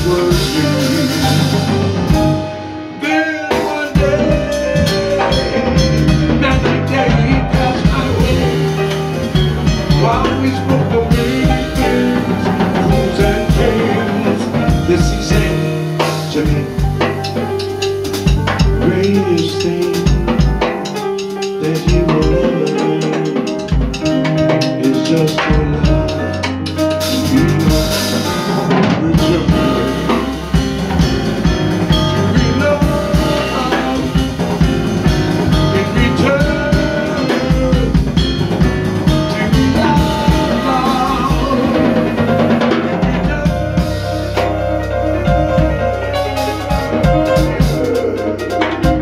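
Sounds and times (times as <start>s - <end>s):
drum kit with rimshots: 0.0s - 49.0s
electric bass: 0.0s - 49.0s
piano: 0.0s - 49.0s.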